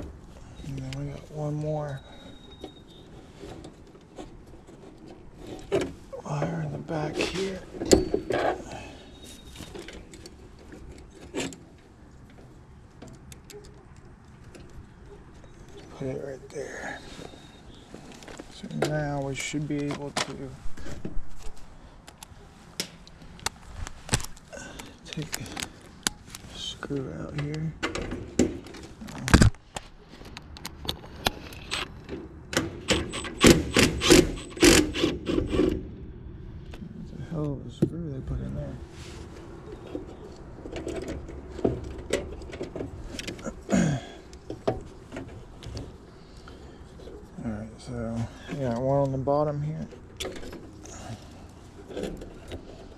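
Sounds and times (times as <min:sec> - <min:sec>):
screwdriver clicking and scraping metal: 0:32.9 - 0:35.6.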